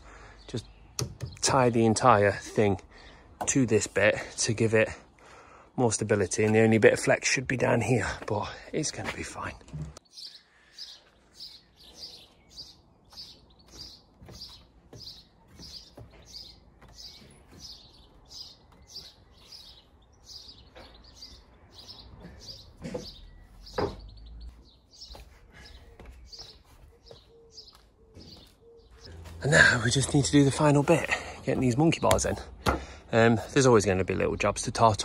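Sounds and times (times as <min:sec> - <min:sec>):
small bird chirping: 0:10.0 - 0:29.2
footsteps on wooden ladder: 0:12.3 - 0:33.0.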